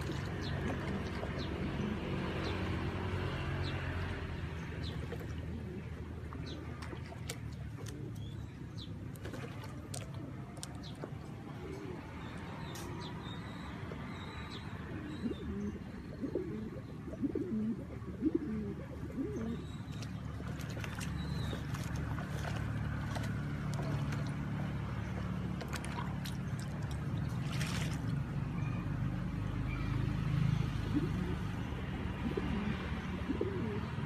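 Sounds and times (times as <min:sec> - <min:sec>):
pigeons cooing: 0:00.0 - 0:02.8, 0:04.9 - 0:08.6, 0:11.5 - 0:12.9, 0:14.5 - 0:24.5, 0:30.6 - 0:34.0
splashing water: 0:00.0 - 0:11.5, 0:19.7 - 0:29.5.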